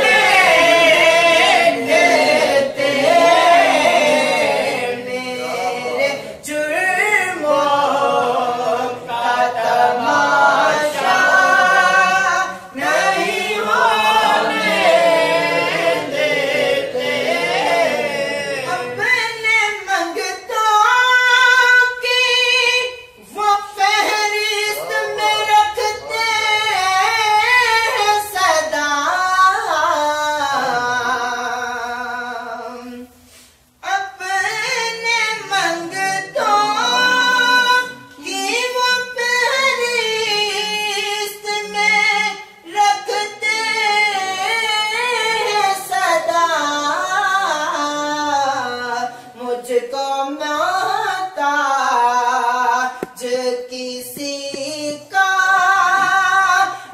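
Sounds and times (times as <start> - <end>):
person singing unaccompanied: 33.8 - 56.9.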